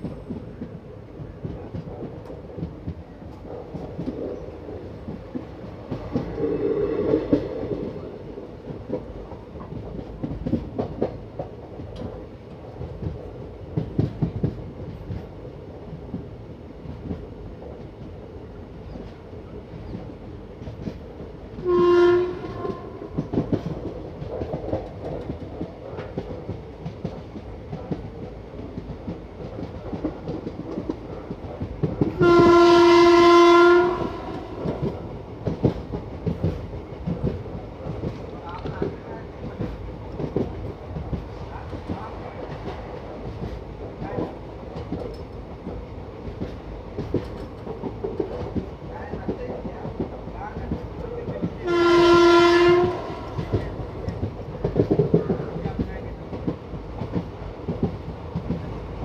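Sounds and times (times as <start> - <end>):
rail-joint clickety-clack: 0.0 - 59.0
train rumbling on track: 0.0 - 59.0
train horn blast: 21.6 - 23.2, 32.2 - 34.7, 51.6 - 53.6.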